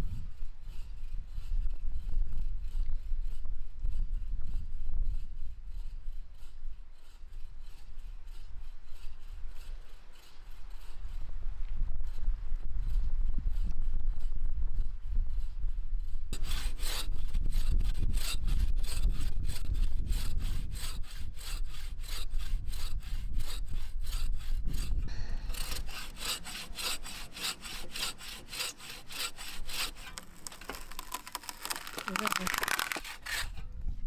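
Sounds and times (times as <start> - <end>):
bow saw cutting branch: 5.1 - 11.3, 16.3 - 33.8.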